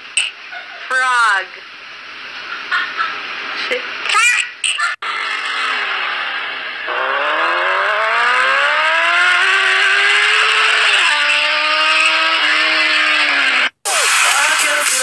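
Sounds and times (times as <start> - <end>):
car engine revving high: 5.0 - 15.0.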